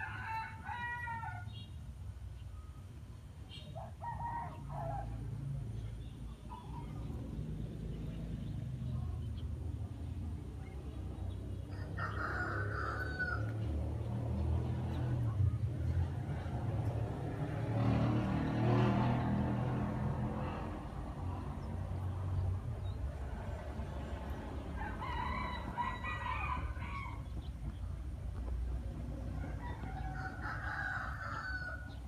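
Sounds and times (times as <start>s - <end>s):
rooster crowing: 0.0s - 1.5s, 11.7s - 13.6s, 24.8s - 27.3s, 29.4s - 32.0s.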